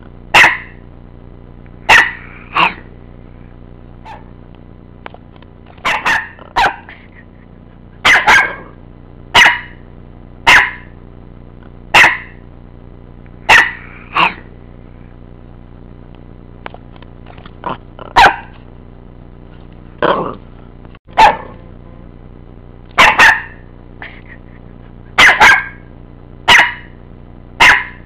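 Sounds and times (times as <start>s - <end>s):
steady low hum: 0.0s - 28.0s
dog barking: 0.3s - 0.8s, 1.9s - 2.9s, 4.0s - 4.3s, 5.8s - 7.0s, 8.0s - 8.8s, 9.4s - 9.8s, 10.4s - 10.9s, 11.9s - 12.4s, 13.5s - 14.5s, 18.1s - 18.6s, 21.1s - 21.6s, 23.0s - 23.6s, 25.2s - 25.9s, 26.5s - 27.0s, 27.6s - 28.0s.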